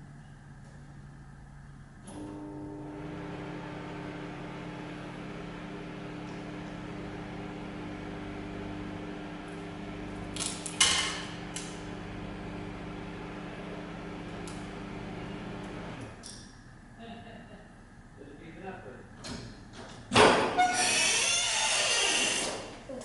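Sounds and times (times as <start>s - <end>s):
microwave oven humming: 0.0s - 18.2s.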